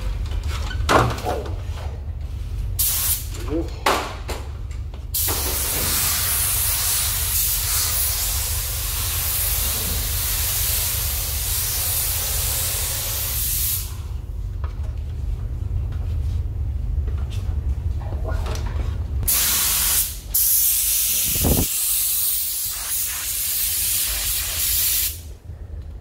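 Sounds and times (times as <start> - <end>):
steady low hum: 0.0 - 26.0
paint spray gun hissing: 5.2 - 13.9, 19.3 - 25.3.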